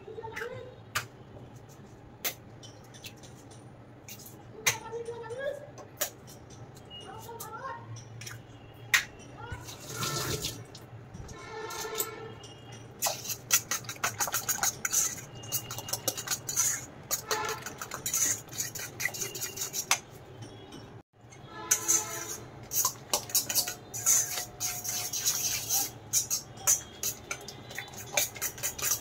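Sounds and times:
utensil scraping metal bowl: 9.5s - 10.7s, 11.3s - 20.9s, 21.5s - 29.0s.

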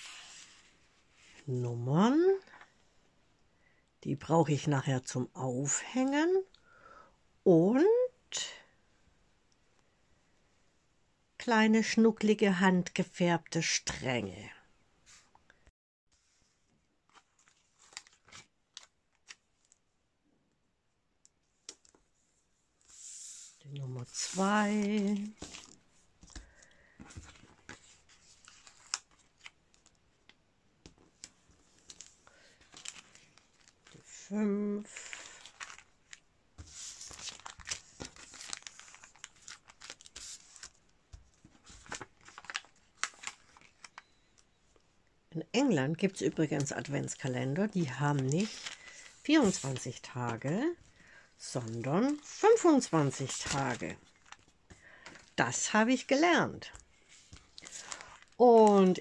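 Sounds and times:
paper bag crackling and rustling: 17.1s - 19.4s, 24.0s - 30.0s, 31.5s - 34.1s, 34.9s - 44.1s, 46.4s - 55.8s, 57.0s - 59.0s.

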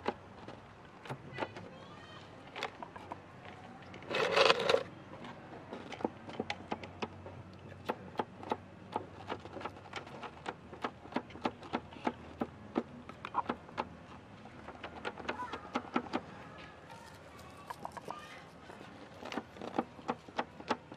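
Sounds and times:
rustling scrape: 4.0s - 4.9s.

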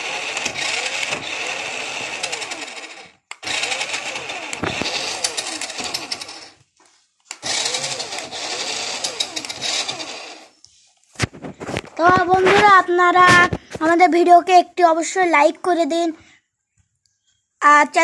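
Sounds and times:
toy car motor and gears whirring: 0.0s - 13.6s.

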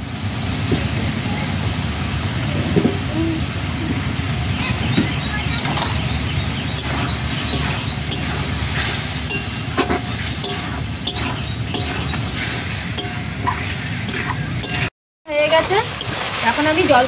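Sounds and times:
paste frying in oil sizzling: 3.0s - 17.0s
metal spoon scraping a pan: 6.8s - 14.9s, 15.5s - 16.7s.

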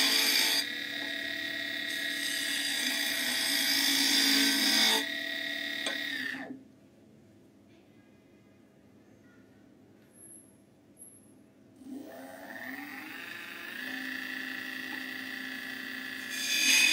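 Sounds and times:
chisel cutting spinning wood: 0.0s - 6.5s, 12.0s - 16.9s
wood lathe motor whine: 0.0s - 6.6s, 11.8s - 16.9s.

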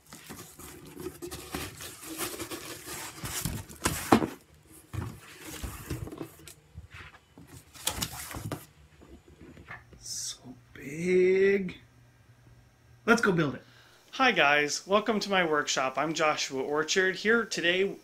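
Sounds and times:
cardboard boxes rustling and scraping: 0.0s - 9.7s.

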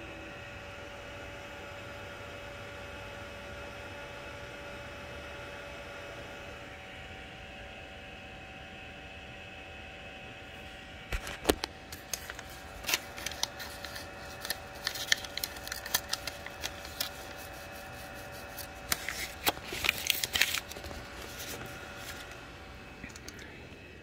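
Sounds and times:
printer fans humming: 0.0s - 24.0s
paper rustling: 11.2s - 22.4s.

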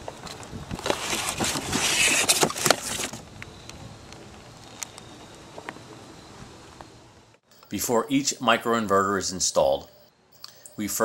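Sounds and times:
cardboard scraping and rustling: 0.3s - 3.2s.

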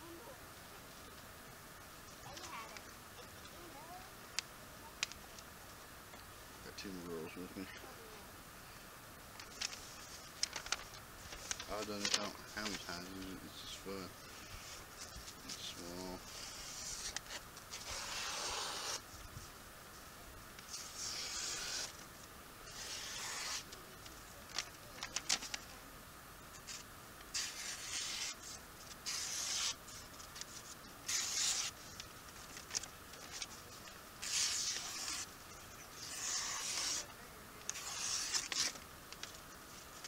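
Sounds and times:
knife slicing paper: 15.6s - 19.0s, 20.7s - 22.0s, 22.7s - 23.7s, 26.6s - 31.8s, 34.2s - 35.3s, 35.9s - 38.8s.

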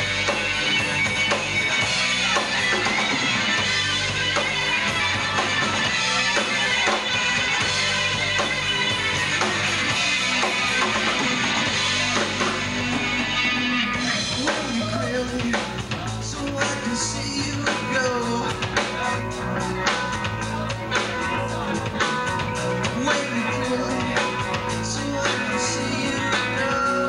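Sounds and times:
live rock band playing: 0.0s - 27.0s
person singing: 13.3s - 27.0s.

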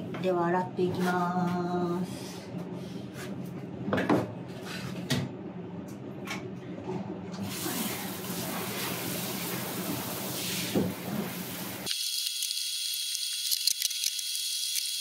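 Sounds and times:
shower spraying into bathtub: 7.4s - 11.9s.

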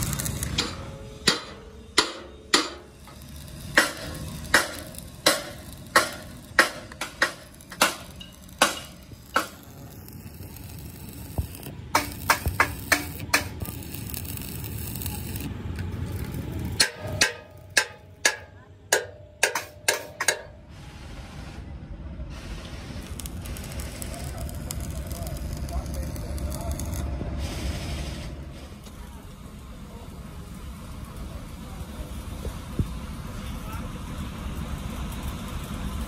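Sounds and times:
hammer striking steel plate: 0.5s - 9.8s, 11.9s - 14.3s, 16.2s - 20.6s.

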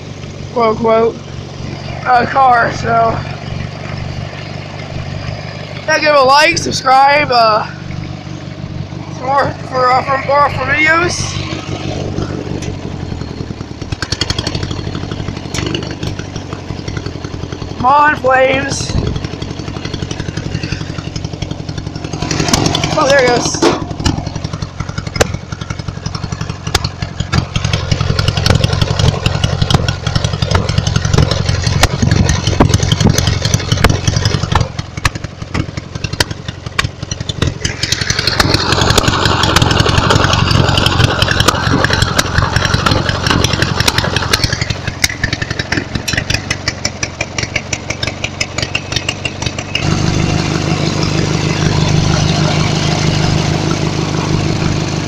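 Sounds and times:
lawn tractor engine running: 0.0s - 55.0s
sharp clicks and pops: 23.6s - 25.7s, 26.6s - 50.0s.

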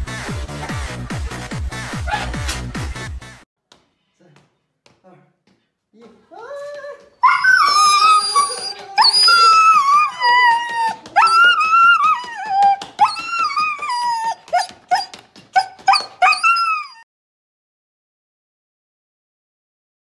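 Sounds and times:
dog whining and howling: 7.2s - 17.1s.

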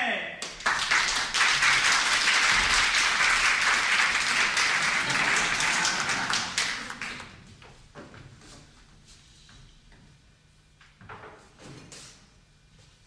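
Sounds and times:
audience applauding: 0.4s - 7.4s.

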